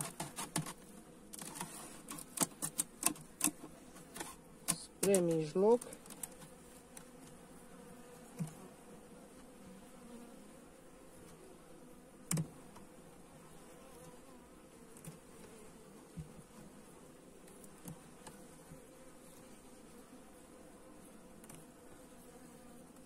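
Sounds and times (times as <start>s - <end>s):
wooden knocks of hive frames: 0.0s - 7.4s, 8.2s - 8.7s, 12.2s - 13.0s, 14.9s - 16.6s, 17.4s - 19.0s
bees humming: 0.0s - 23.0s.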